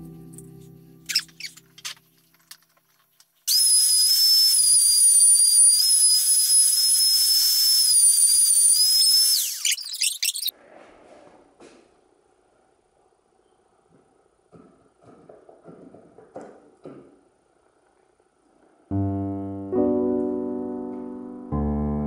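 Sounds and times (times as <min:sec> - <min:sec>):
high-pitched whistle: 0:03.5 - 0:10.5
light scrapes: 0:10.6 - 0:11.9.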